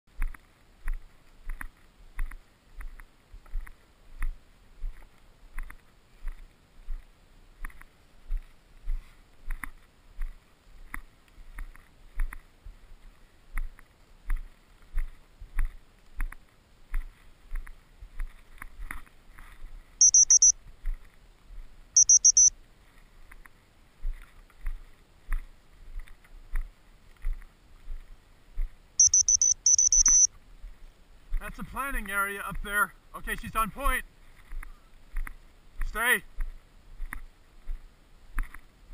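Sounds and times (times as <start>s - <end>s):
high electronic beeping: 20.0s - 20.5s, 22.0s - 22.5s, 29.0s - 30.3s.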